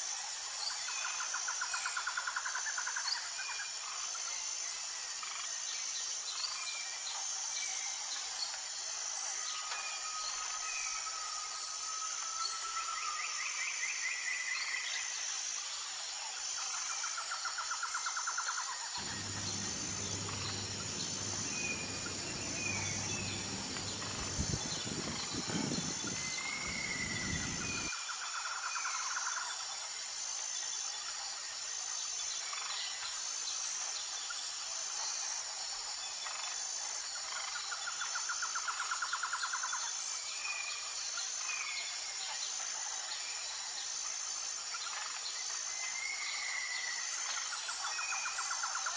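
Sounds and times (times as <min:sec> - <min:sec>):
bird chirps: 0:19.0 - 0:27.9
high-pitched insect buzzing: 0:19.0 - 0:27.9
low rumble: 0:19.0 - 0:27.9.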